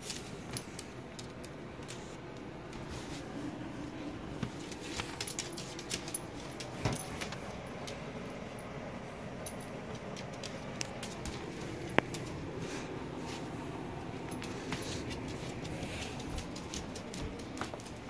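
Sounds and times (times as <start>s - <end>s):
dog scrambling on tile floor: 4.4s - 7.4s
light clicks and rattles: 4.5s - 8.0s, 9.4s - 12.4s.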